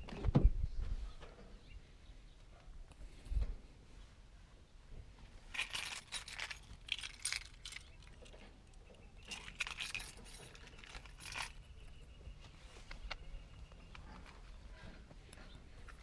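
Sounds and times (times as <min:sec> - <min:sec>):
metallic jingling: 0:05.5 - 0:12.2.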